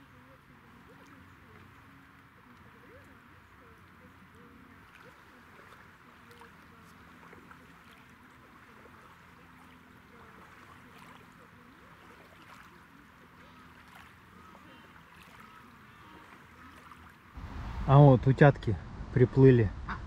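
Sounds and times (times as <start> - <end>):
light rain hiss: 17.1 - 20.0.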